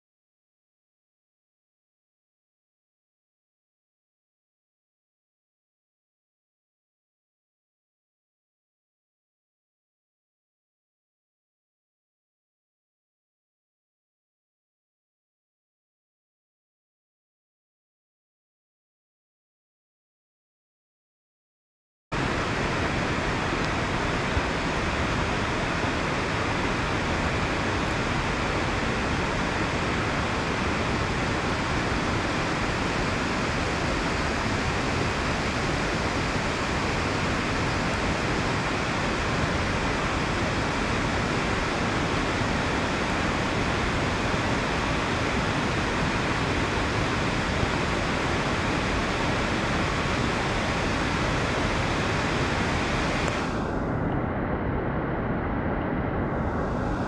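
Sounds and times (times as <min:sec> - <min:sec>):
rain falling on water: 0:22.2 - 0:53.4.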